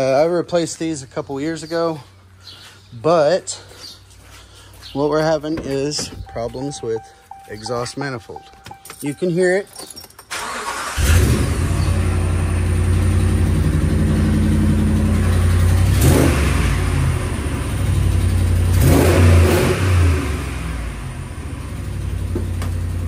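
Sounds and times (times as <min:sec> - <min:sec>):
truck engine cranking and running: 0:05.3 - 0:07.7, 0:08.3 - 0:19.4.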